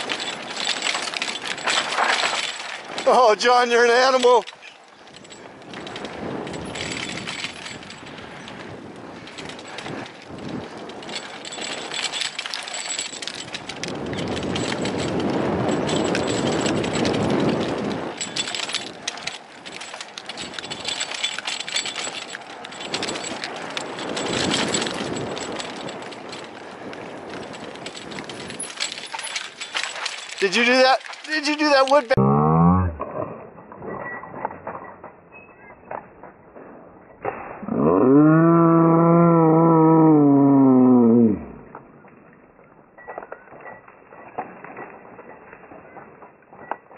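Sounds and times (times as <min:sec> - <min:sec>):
bike rattling over bumps: 0:00.0 - 0:32.2
tyres crunching over dirt and stones: 0:00.0 - 0:32.2.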